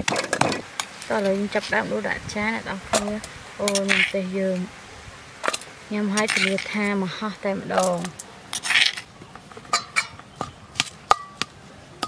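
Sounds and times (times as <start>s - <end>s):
person speaking: 1.1s - 4.8s, 5.8s - 8.2s
spoon scraping a metal bowl: 6.2s - 6.8s.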